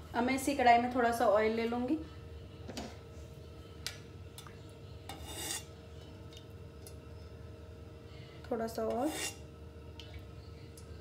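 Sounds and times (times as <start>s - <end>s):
faint hum: 0.0s - 11.0s
spoon scraping pan: 5.1s - 5.7s, 8.8s - 9.4s.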